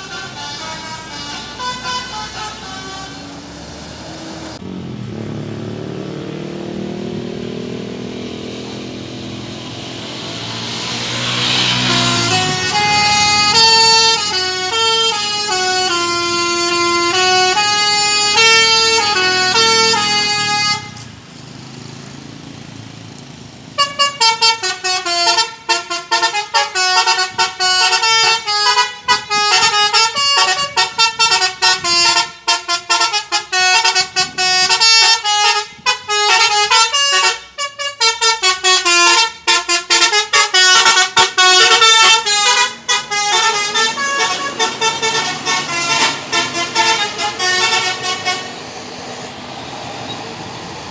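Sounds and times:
musical air horn playing a tune: 0.0 - 3.5, 10.6 - 21.1, 23.8 - 48.6.

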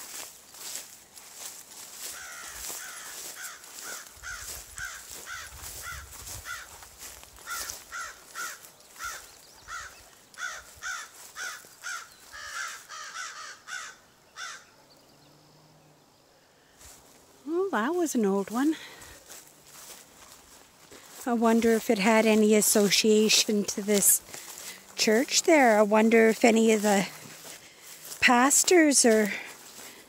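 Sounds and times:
footsteps through tall grass: 0.0 - 13.5, 16.7 - 30.0
crow cawing: 2.0 - 6.8, 7.4 - 14.7.

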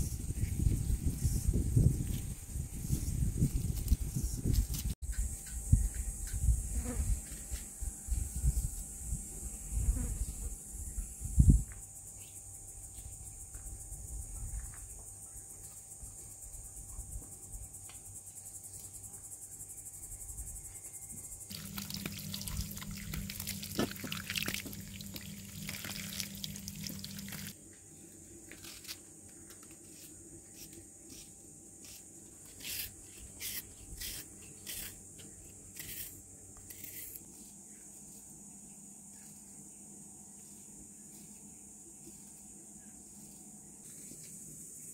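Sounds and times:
insects chirring: 0.0 - 44.9
water running and splashing: 21.5 - 27.6.

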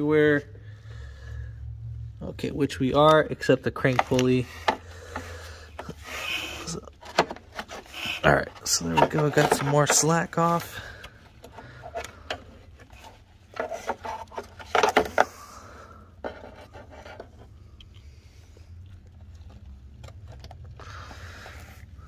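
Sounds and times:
drive belt rubbing and scraping: 3.8 - 15.2
knocks and scrapes: 3.8 - 15.5, 16.2 - 17.6.

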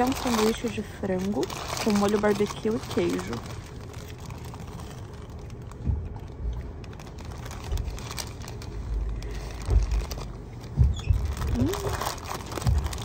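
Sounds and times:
paper wrapper crinkling: 0.0 - 13.0
train carriage rumble: 0.0 - 13.0
low thumps: 5.7 - 8.2, 9.6 - 13.0.

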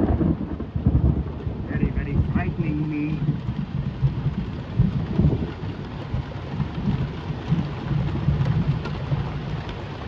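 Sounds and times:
low thunder rumble: 0.0 - 10.0
rain falling: 0.0 - 10.0.

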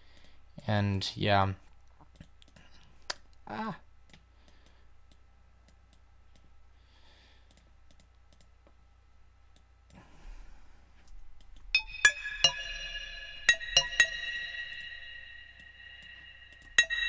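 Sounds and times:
faint steady hum: 0.0 - 17.0
computer mouse clicks: 7.4 - 8.5
bell-like synthesizer note: 11.8 - 17.0.

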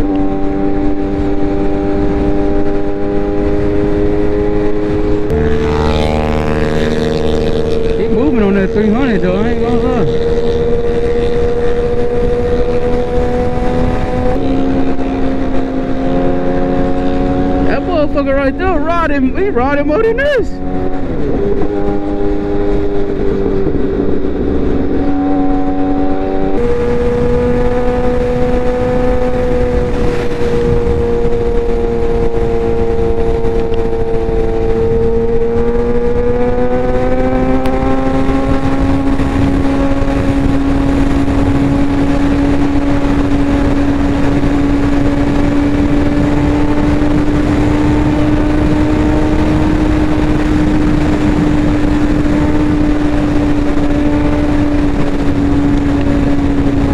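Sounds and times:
wind and road noise: 0.0 - 56.9
motorcycle engine pulling: 20.5 - 56.9.

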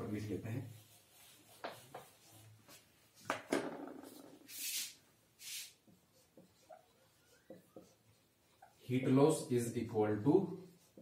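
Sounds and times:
duster rubbing whiteboard: 0.1 - 2.9, 4.0 - 9.5, 10.6 - 11.0
short hissing rub: 4.4 - 5.8.

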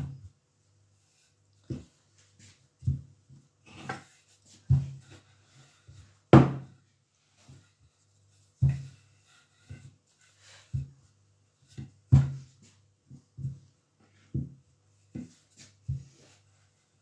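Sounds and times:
rolling pin knocking on wooden board: 6.3 - 6.7.

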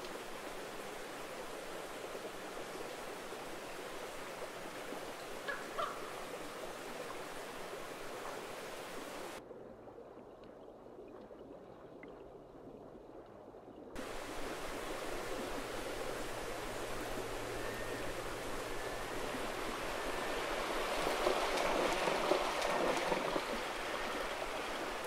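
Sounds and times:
river flowing: 0.0 - 9.4, 14.0 - 25.0.

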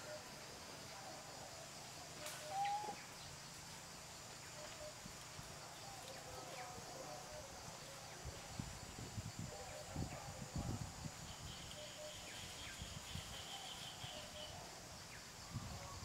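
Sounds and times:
background hiss: 0.0 - 16.0
faint bird chirps: 2.0 - 3.4.

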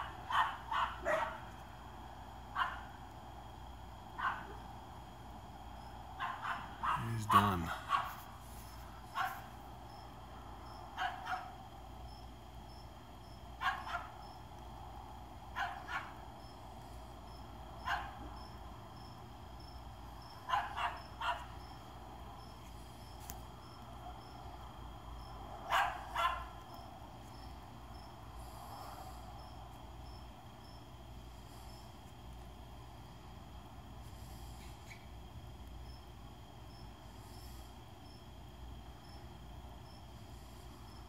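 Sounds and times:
dog barking: 0.0 - 1.5, 2.5 - 2.9, 4.2 - 4.6, 6.2 - 8.3, 9.1 - 9.5, 11.0 - 11.6, 13.6 - 14.2, 15.5 - 16.2, 17.8 - 18.3, 20.4 - 21.5, 25.7 - 26.6.

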